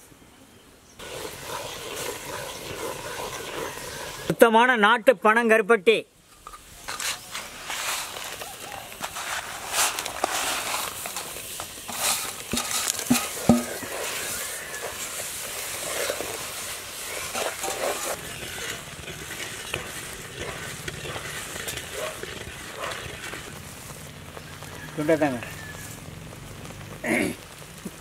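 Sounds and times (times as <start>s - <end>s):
ladle stirring bubbling syrup: 1.0s - 4.3s, 7.2s - 24.8s
scraping on a steel plate: 6.9s - 23.5s.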